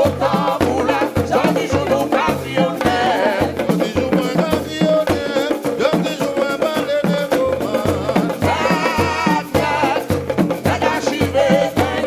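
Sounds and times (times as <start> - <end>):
hand drums beating: 0.0 - 12.0
people singing: 0.0 - 12.0.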